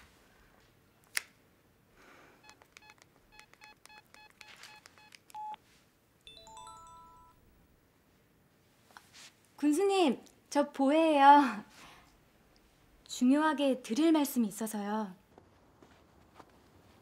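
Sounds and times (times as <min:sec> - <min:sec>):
phone keypad beeps: 0:02.4 - 0:05.6.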